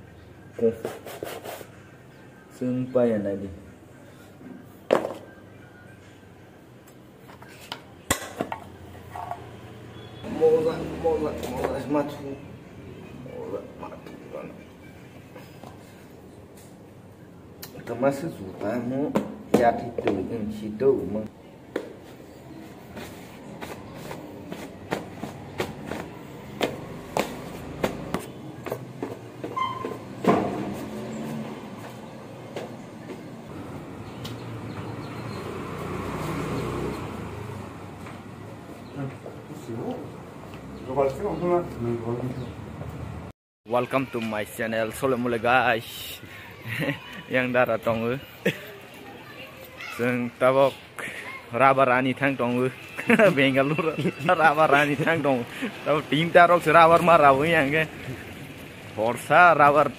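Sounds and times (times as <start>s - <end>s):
footsteps on tiled stairs: 19.0s - 20.5s, 21.7s - 33.6s
high squeak: 29.5s - 30.1s.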